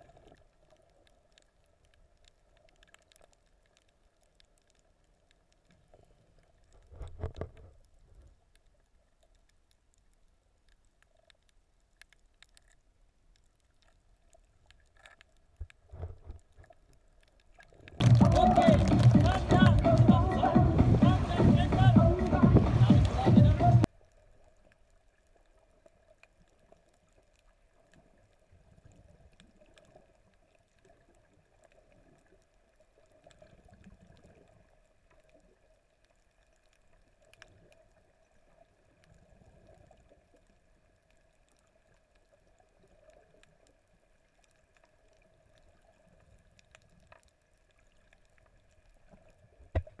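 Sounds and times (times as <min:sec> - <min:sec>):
faint clicks: 0:00.0 - 0:20.1
underwater water swishes: 0:00.0 - 0:50.0.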